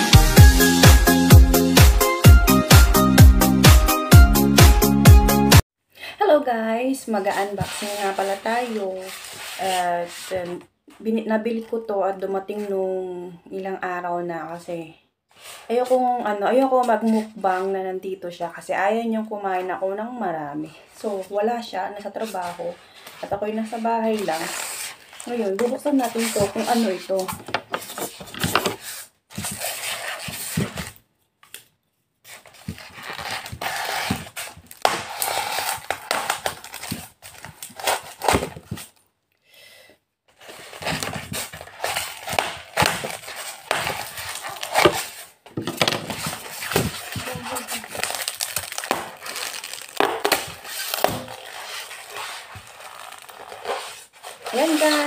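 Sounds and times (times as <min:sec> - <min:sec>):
tape crinkling against foam: 0:22.1 - 0:39.0, 0:40.3 - 0:55.0
packing tape peeled off foam box: 0:24.1 - 0:31.6, 0:32.3 - 0:39.0, 0:40.4 - 0:55.0.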